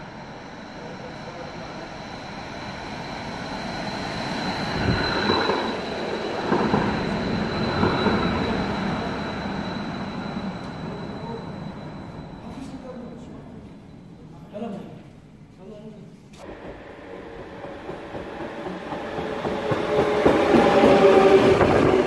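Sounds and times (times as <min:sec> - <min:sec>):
tram rumbling past: 0:00.0 - 0:14.0, 0:16.4 - 0:22.0
thin high tone: 0:00.0 - 0:14.7.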